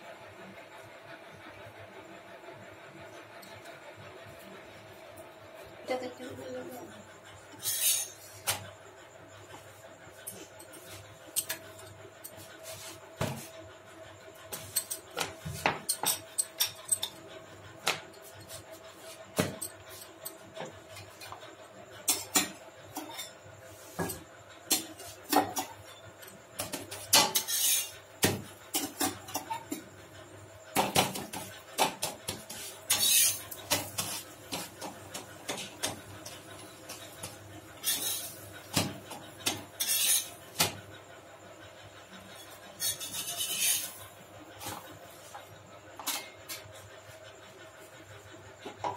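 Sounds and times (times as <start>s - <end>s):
spatula scraping a griddle: 7.5s - 8.6s, 10.3s - 13.5s, 26.6s - 29.7s, 31.1s - 40.8s, 42.4s - 45.4s.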